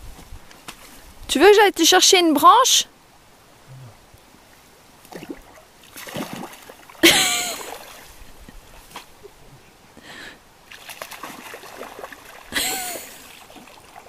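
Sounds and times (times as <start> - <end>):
hands splashing in stream: 5.0 - 8.1, 10.6 - 14.0
sharp splash: 5.1 - 8.1, 10.7 - 14.0.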